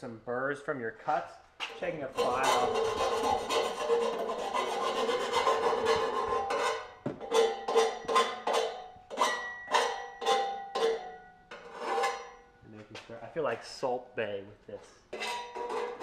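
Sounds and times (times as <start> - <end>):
hand file rasping on metal pipe: 2.1 - 12.3, 15.1 - 16.0.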